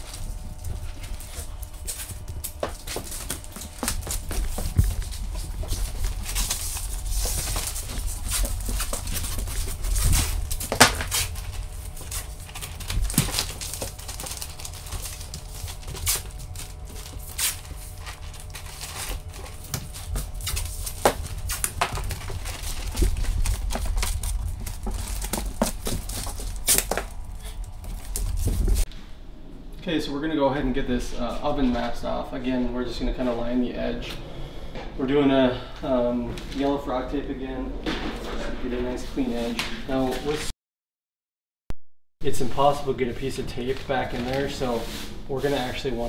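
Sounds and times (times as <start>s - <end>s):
plastic sheet rustling and crinkling: 0.0s - 28.9s, 42.6s - 46.0s.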